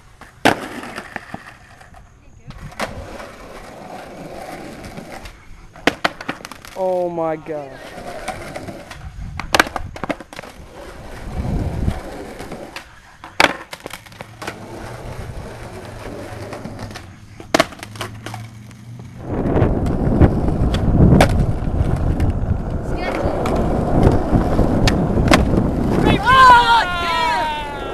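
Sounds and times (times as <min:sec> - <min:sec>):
skateboard wheels rolling: 0:00.0 - 0:27.9
skateboard pops and slaps: 0:00.2 - 0:03.0, 0:05.1 - 0:06.8, 0:08.2 - 0:10.6, 0:12.4 - 0:14.6, 0:16.4 - 0:18.4, 0:20.6 - 0:22.4, 0:23.1 - 0:26.0.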